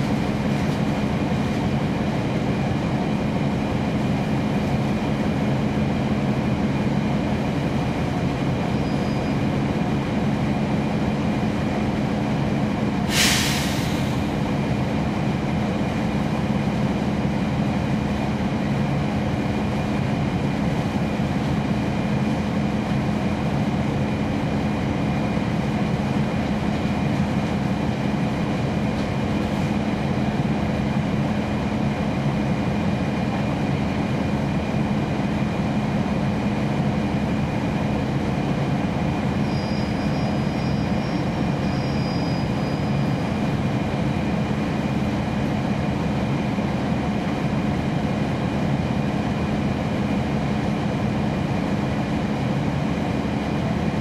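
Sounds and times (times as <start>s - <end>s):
bus diesel engine drone: 0.0s - 54.0s
compressed air hiss: 13.1s - 14.2s.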